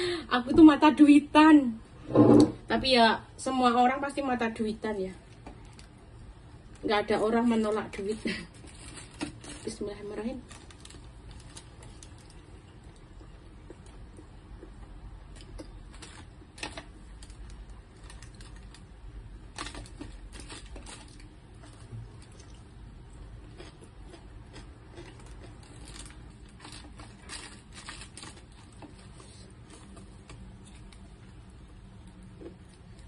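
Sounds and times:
low steady hum: 0.0s - 33.0s
paper food wrapping crinkling: 7.6s - 12.9s, 15.3s - 22.6s, 24.5s - 33.0s
chewing: 19.6s - 33.0s.

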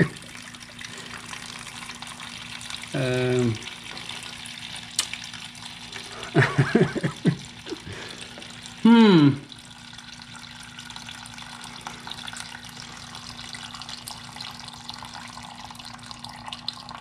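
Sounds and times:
liquid trickling from drain: 0.0s - 8.8s, 9.4s - 17.0s.

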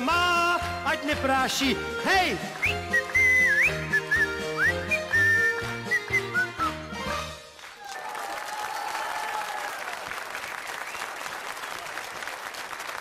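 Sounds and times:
song accompaniment with bass: 0.0s - 7.6s
whistle-like melody: 2.4s - 7.3s
audience applause: 7.5s - 13.0s.

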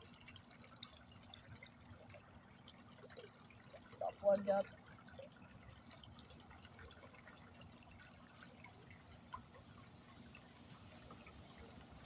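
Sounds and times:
water trickling and dripping: 0.0s - 12.0s.

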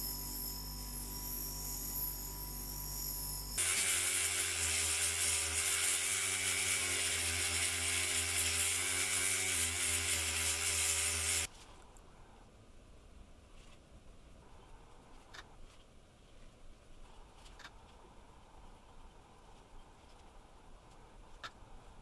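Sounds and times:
rotary tool scrubbing metal: 3.5s - 11.5s
wire wheel grinding metal: 3.5s - 11.5s.

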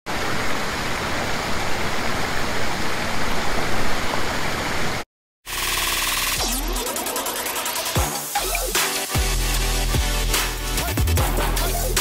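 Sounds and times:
electronic music: 5.5s - 12.0s.

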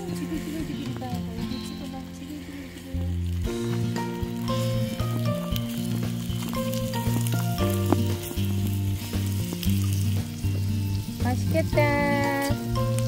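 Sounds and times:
background music with bass: 0.0s - 13.0s
crackles: 0.0s - 13.0s
meat sizzling in a frying pan: 3.1s - 13.0s.

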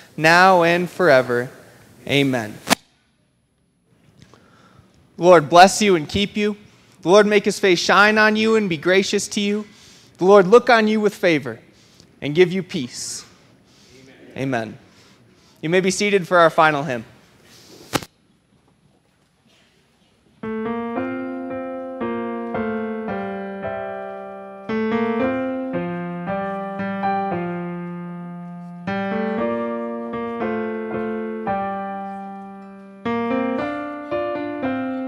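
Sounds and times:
piano playing hymn chords: 20.4s - 35.0s.

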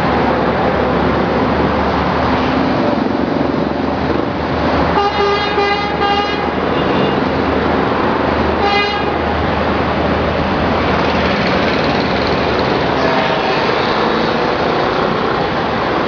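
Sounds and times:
highway traffic noise: 0.0s - 16.0s
vehicle horn honking: 5.0s - 7.2s, 8.6s - 9.2s.

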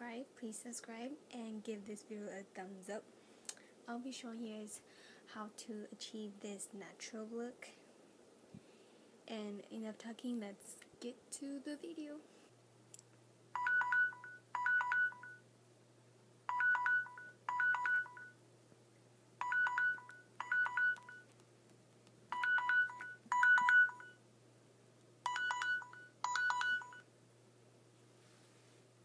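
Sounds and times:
phone alarm chiming beeps: 13.6s - 15.4s, 16.5s - 18.4s, 19.4s - 21.2s, 22.3s - 24.2s, 25.2s - 27.1s.

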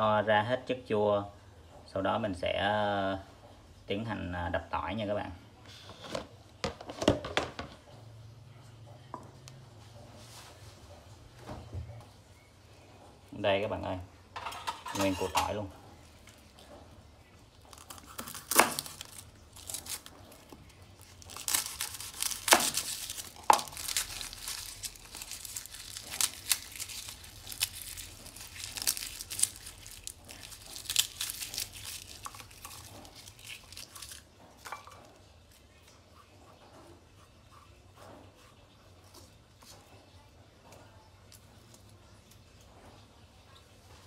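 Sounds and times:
garlic skins crackling: 13.3s - 36.2s
garlic cloves snapping: 17.7s - 20.1s, 21.1s - 34.2s.

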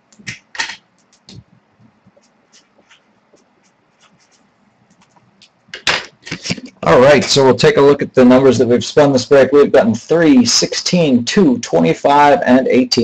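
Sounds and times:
pen scratching on paper: 2.1s - 5.2s.

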